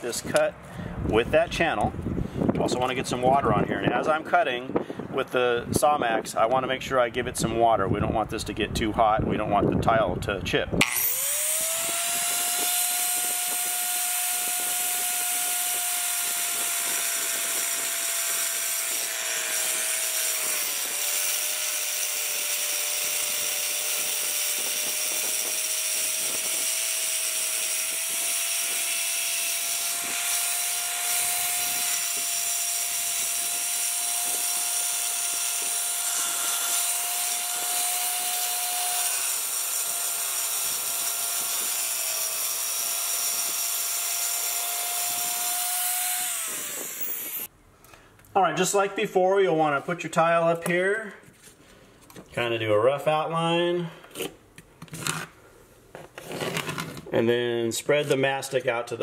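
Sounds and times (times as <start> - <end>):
saw cutting tile: 10.8 - 47.5.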